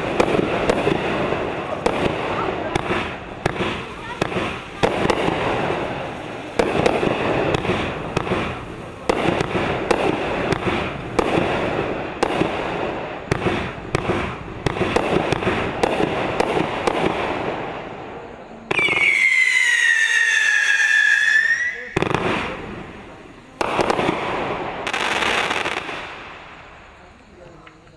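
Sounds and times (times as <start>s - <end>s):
firework launch thumps and bursts: 0.0s - 17.7s
firework crackling: 0.0s - 27.9s
high falling whistle: 18.8s - 22.0s.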